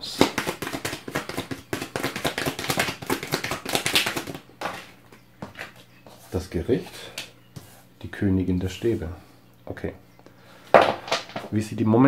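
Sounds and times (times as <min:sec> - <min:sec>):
cards being shuffled: 0:00.0 - 0:05.8.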